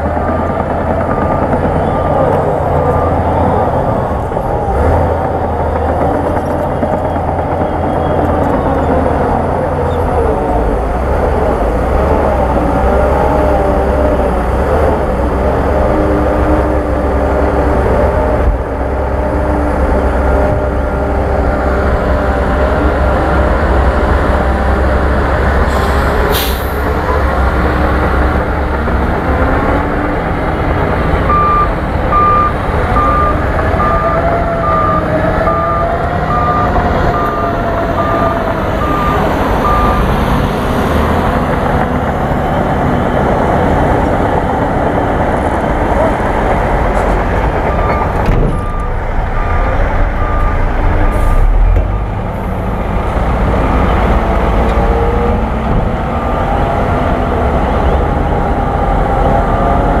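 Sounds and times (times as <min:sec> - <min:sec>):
bulldozer diesel engine: 0:00.0 - 1:00.0
reversing alarm beeping: 0:31.2 - 0:41.1, 0:47.7 - 0:52.6.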